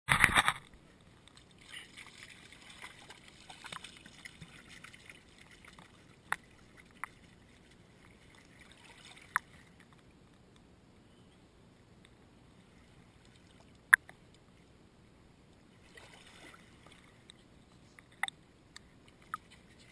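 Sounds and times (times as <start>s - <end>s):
seawater lapping over rocks: 1.2s - 10.1s, 15.7s - 17.5s.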